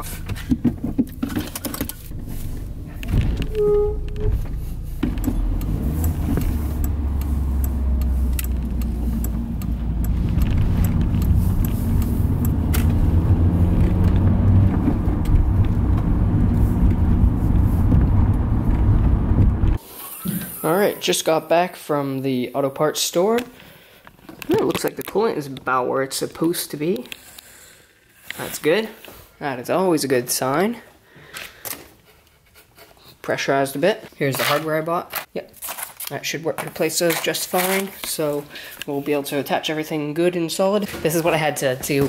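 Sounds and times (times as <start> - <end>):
car engine and road rumble: 0.0 - 19.8
short beep: 3.5 - 4.6.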